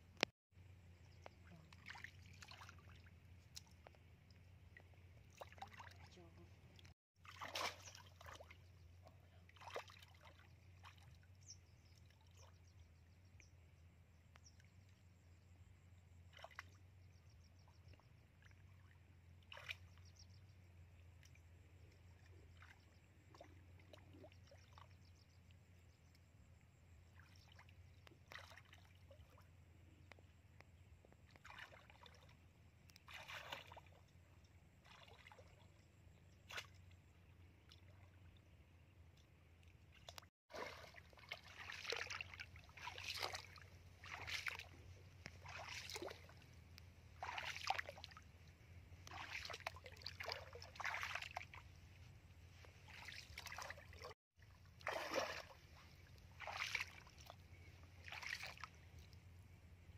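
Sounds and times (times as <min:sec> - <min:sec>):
splashing in shallow muddy water: 0:00.0 - 0:59.9.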